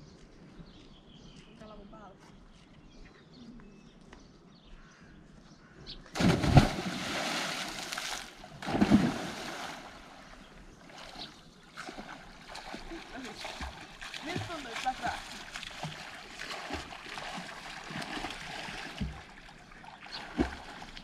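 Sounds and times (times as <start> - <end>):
loud splash into river: 6.2 - 10.2.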